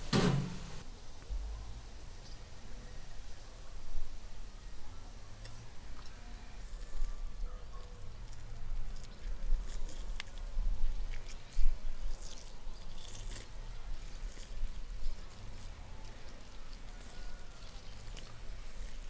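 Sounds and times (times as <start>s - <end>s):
sharp crack: 0.0s - 0.8s
wet membrane tearing: 8.0s - 19.0s.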